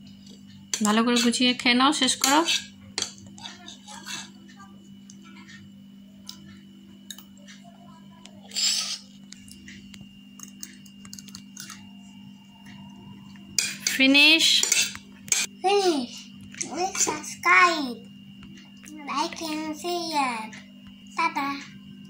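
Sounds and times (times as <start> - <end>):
faint steady hum: 0.0 - 22.0
metal spoon scraping ceramic plate: 2.2 - 3.1, 3.7 - 4.4, 14.6 - 15.5
child speaking loudly: 16.7 - 18.0, 19.0 - 20.5.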